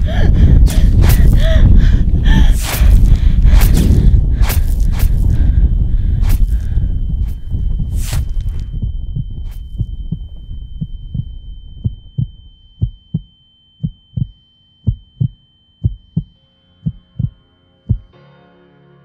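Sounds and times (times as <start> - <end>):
noisy rumble: 0.0 - 13.3
heartbeat double beats: 0.0 - 18.1
high ringing tone: 4.6 - 18.2
soft music: 15.4 - 19.0.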